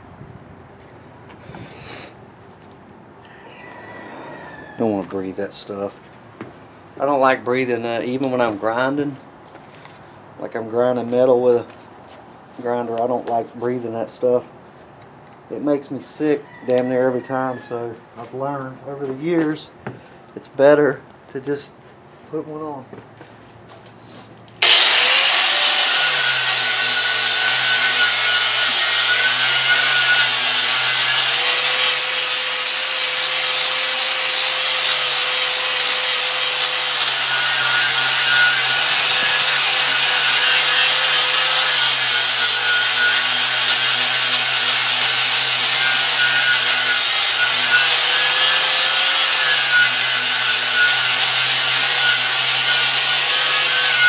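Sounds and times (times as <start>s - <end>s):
angle grinder grinding metal: 24.6s - 54.0s.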